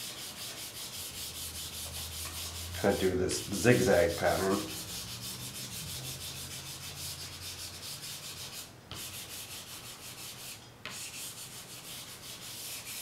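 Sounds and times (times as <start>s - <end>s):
charcoal scratching on paper: 0.0s - 13.0s.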